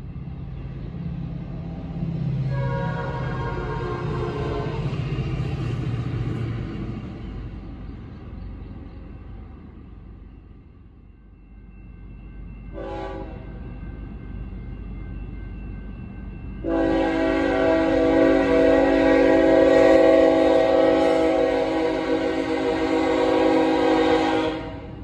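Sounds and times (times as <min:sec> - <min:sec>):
locomotive air horn blasts: 0:02.5 - 0:04.9, 0:12.8 - 0:13.4, 0:16.6 - 0:24.9.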